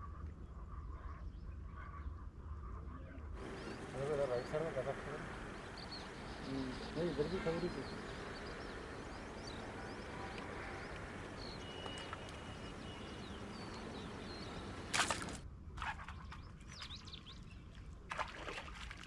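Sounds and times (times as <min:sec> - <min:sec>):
small birds chirping: 0:00.0 - 0:15.4
steady background hiss: 0:03.4 - 0:15.4.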